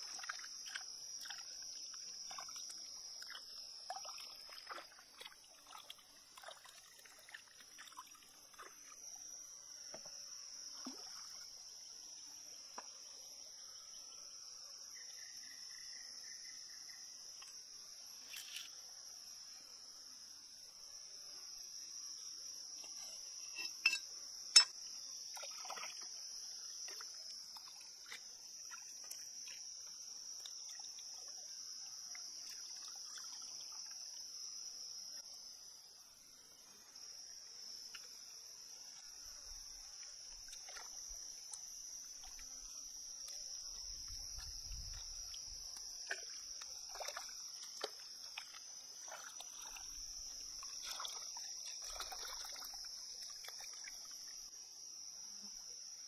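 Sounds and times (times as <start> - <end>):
water splashing and dripping: 0.0 - 8.8, 25.4 - 26.1, 26.9 - 31.3, 40.0 - 42.5, 44.0 - 54.2
insect chorus chirring: 0.0 - 56.0.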